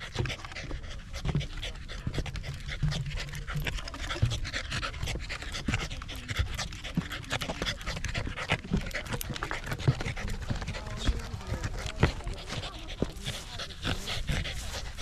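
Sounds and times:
boots on wooden boardwalk: 0.0 - 15.0
dog panting: 0.0 - 15.0.

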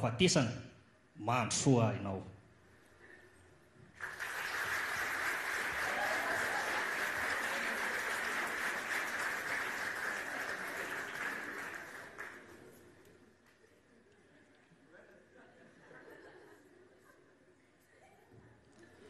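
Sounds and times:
audience applauding: 3.9 - 13.0.

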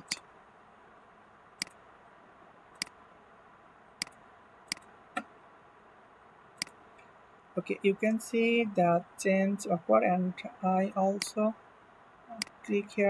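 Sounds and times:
faint steady hiss: 0.0 - 13.0
computer mouse clicking: 1.6 - 1.8, 2.8 - 3.0, 4.0 - 4.9.

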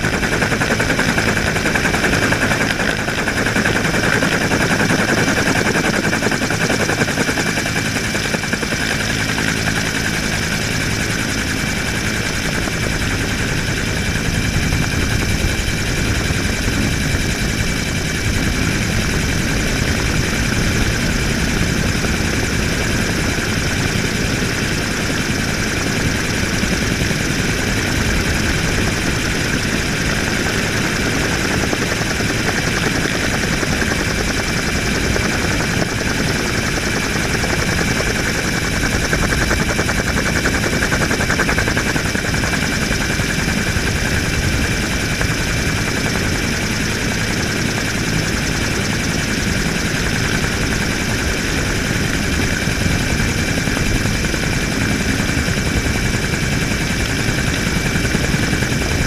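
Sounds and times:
helicopter rotor beat: 0.0 - 59.0.

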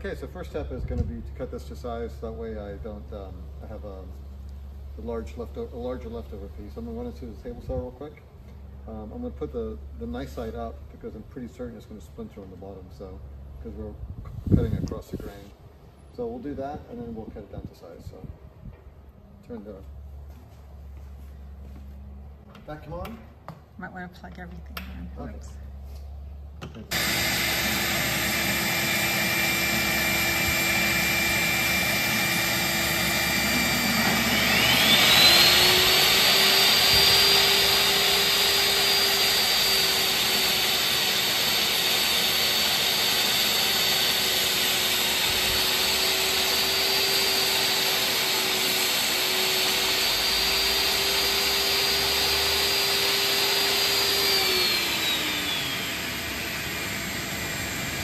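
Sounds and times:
shop vacuum running: 26.7 - 58.0
table saw cutting board: 26.9 - 58.0.

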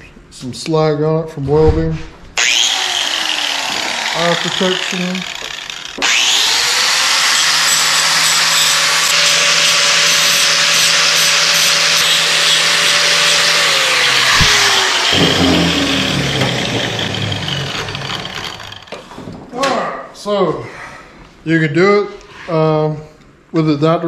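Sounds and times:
angle grinder whining: 2.4 - 19.0.

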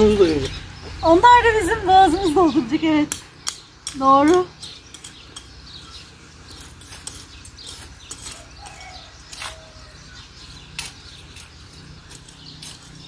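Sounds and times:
faint birds chirping: 0.0 - 13.0
hand trowels scraping stony soil: 6.2 - 13.0.

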